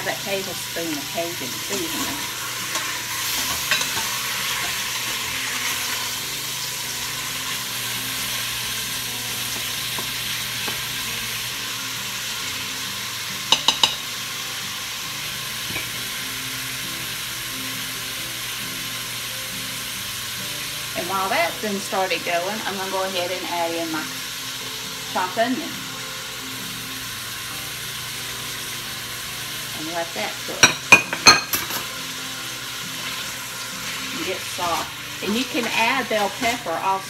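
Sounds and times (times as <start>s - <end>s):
meat sizzling in a pot: 0.0s - 37.0s.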